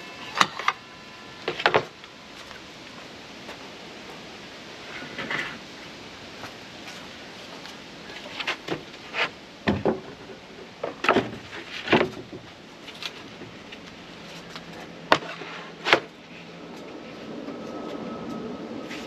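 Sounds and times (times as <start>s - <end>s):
wooden knocks and scrapes: 8.2s - 12.5s.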